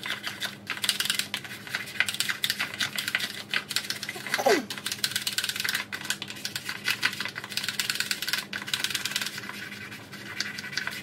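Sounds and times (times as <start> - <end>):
brush scrubbing plastic box: 8.6 - 11.0.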